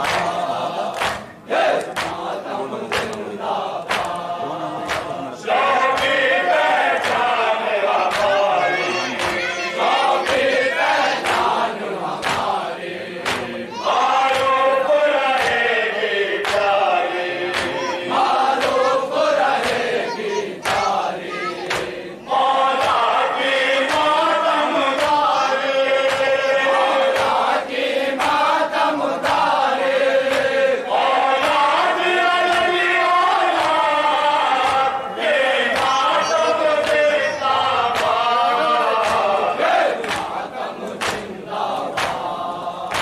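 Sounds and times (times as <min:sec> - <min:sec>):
hands beating chest: 0:00.0 - 0:05.2, 0:11.2 - 0:13.6, 0:17.5 - 0:17.9, 0:19.5 - 0:19.9, 0:20.6 - 0:21.0, 0:21.6 - 0:22.0, 0:32.4 - 0:32.8, 0:39.0 - 0:40.4, 0:41.9 - 0:42.3
men chanting in chorus: 0:00.0 - 0:43.0.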